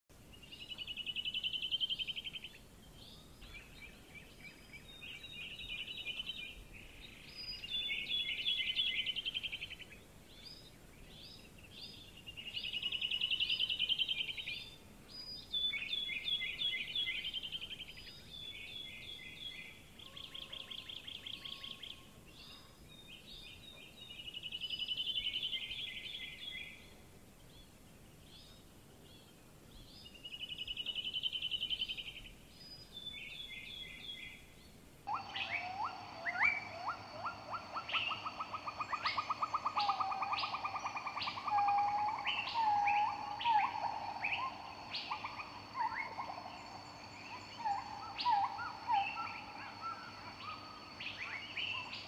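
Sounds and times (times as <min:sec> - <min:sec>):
birds chirping: 0:33.0 - 0:52.0
bird trilling: 0:35.1 - 0:52.0.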